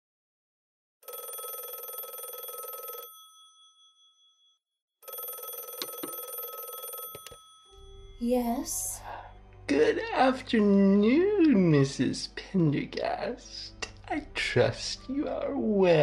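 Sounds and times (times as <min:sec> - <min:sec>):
telephone bell ringing: 0:01.0 - 0:07.8.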